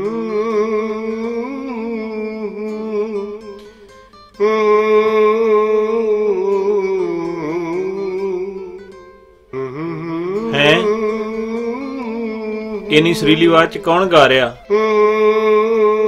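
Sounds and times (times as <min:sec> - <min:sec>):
person humming a tune: 0:00.0 - 0:16.0.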